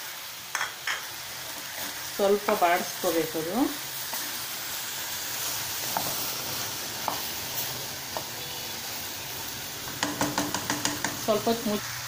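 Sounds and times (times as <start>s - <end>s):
vegetables sizzling in oil: 0.0s - 12.0s
spatula tapping metal pot: 10.0s - 11.3s.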